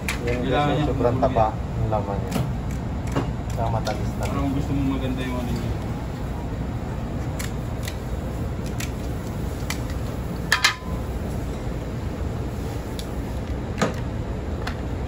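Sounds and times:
steady low rumble: 0.0 - 15.0
metal platters and utensils clinking: 10.5 - 11.0.

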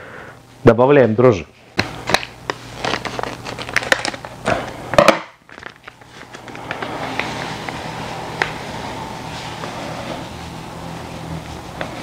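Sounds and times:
packets crinkling: 2.1 - 4.5, 5.4 - 7.8.

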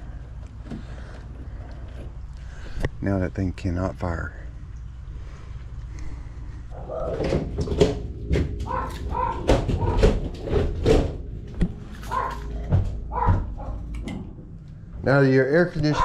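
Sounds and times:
steady low hum: 0.0 - 16.0
dog barking and whining: 6.7 - 7.4, 8.6 - 10.6, 12.0 - 13.8.

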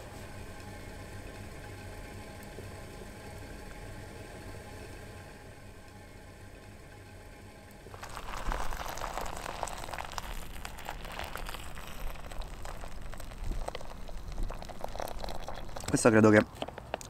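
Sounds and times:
hot water pouring into pouch: 7.9 - 16.1.

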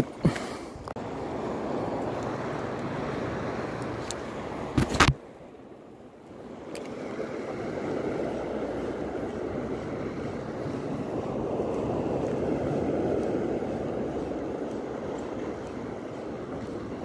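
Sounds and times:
surf washing onto shore: 6.4 - 17.0.

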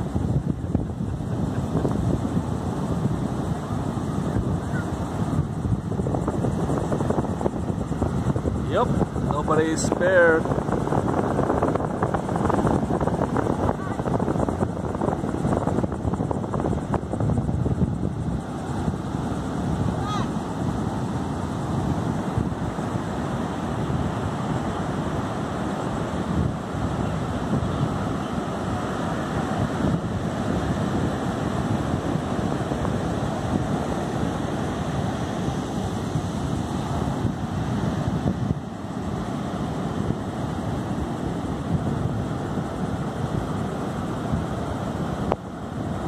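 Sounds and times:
surf breaking on beach: 0.0 - 46.0
wind buffeting microphone: 0.0 - 46.0.

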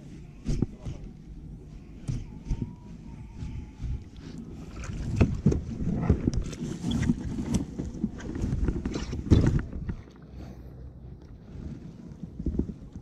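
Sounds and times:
water splashing against hull: 0.1 - 13.0
wind buffeting microphone: 10.9 - 13.0.

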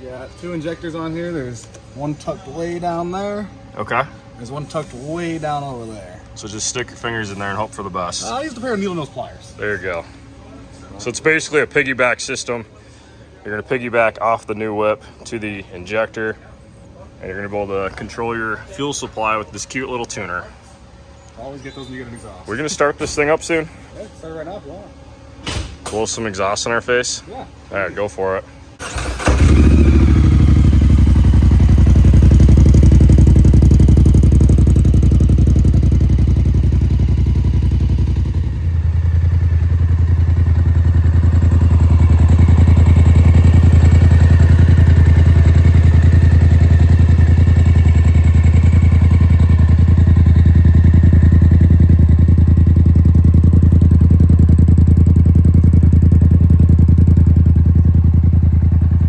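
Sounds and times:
engine idling: 28.7 - 59.0.

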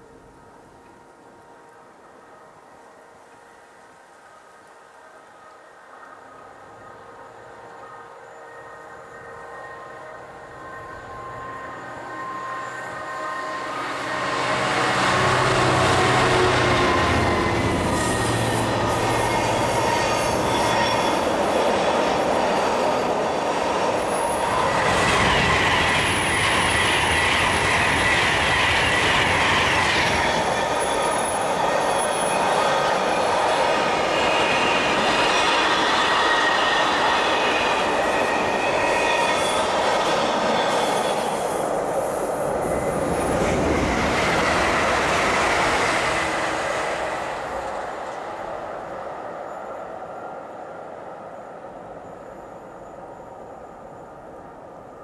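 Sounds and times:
electric train rushing past: 5.8 - 55.0
diesel locomotive engine at full power: 6.3 - 54.6
high wheel squeals: 8.2 - 47.8.

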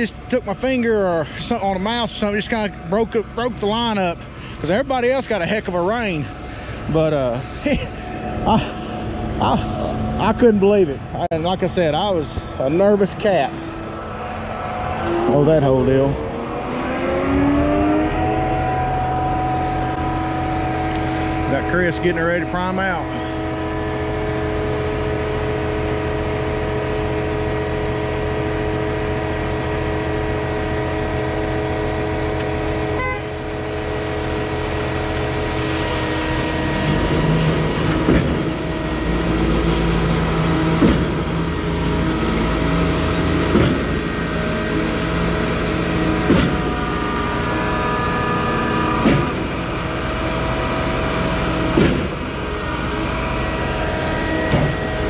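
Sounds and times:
diesel engines running: 0.0 - 55.0
concrete pump heavy clunk: 36.7 - 42.4, 43.2 - 44.2, 45.4 - 47.0, 49.0 - 49.9, 51.0 - 52.6, 53.6 - 55.0.

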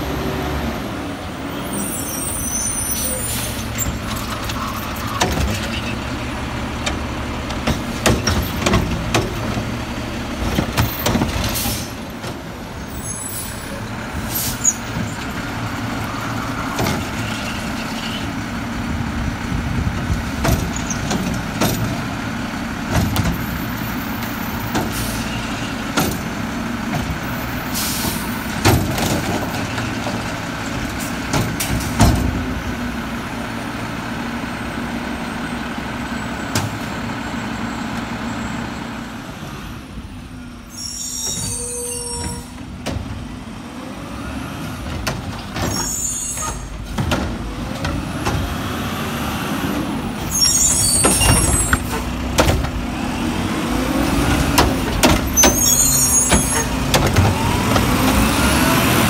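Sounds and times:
garbage truck whine: 0.0 - 59.0
carts banging and clattering: 22.8 - 32.7, 44.8 - 48.6, 50.1 - 59.0.

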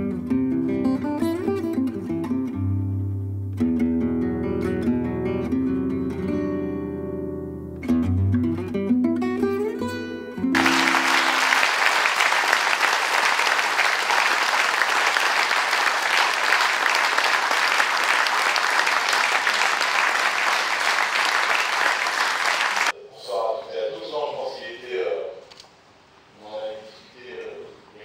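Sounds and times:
audience applauding: 10.6 - 22.9.

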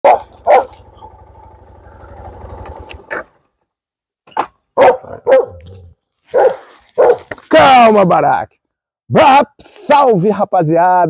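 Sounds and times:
dog barking: 0.0 - 0.9, 4.8 - 7.3
motorcycle engine running: 0.0 - 3.4.

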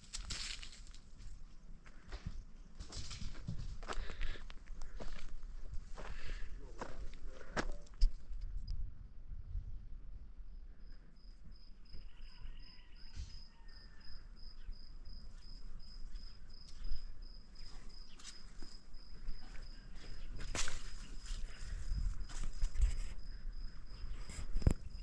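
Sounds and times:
cricket chirping: 10.3 - 25.0.

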